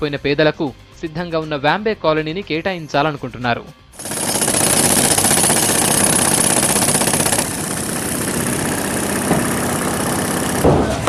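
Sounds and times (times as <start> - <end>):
jackhammer breaking concrete: 4.0 - 11.0.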